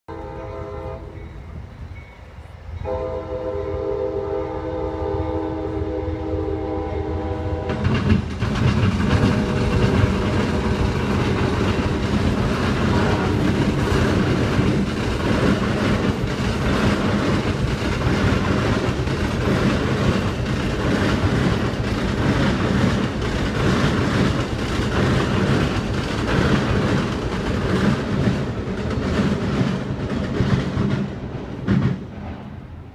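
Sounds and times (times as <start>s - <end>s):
train horn: 0.1s - 1.6s, 2.8s - 8.1s, 9.0s - 14.2s
train cars rumbling on bridge: 0.1s - 32.9s.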